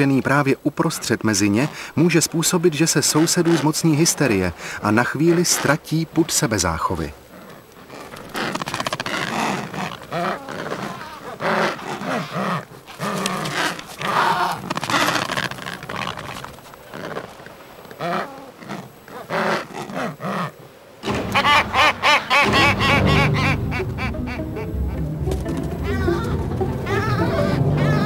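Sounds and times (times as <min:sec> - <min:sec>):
penguins squawking: 0:02.8 - 0:04.2, 0:05.0 - 0:05.9, 0:07.3 - 0:17.2, 0:18.0 - 0:28.0.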